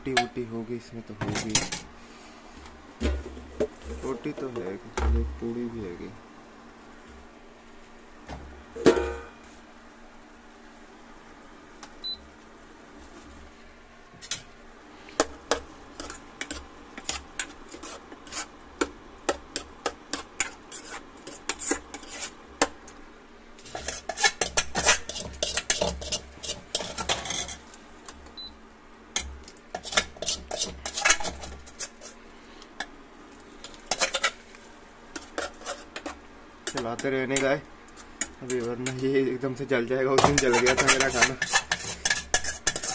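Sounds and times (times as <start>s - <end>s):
metal spoon scraping steel bowl: 20.2s - 22.4s, 23.7s - 27.6s, 29.7s - 32.2s, 40.2s - 42.9s.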